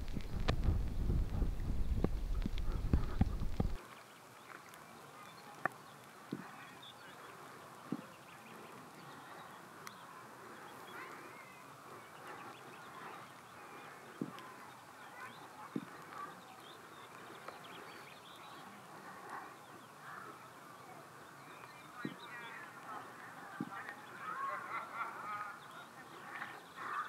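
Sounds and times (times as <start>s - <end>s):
short low thumps: 0.0s - 3.8s
distant birds calling: 0.0s - 27.0s.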